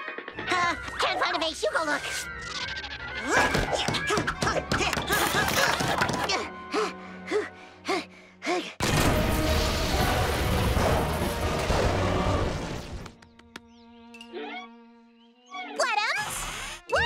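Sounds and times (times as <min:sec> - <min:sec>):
cartoon music: 0:14.2 - 0:17.0.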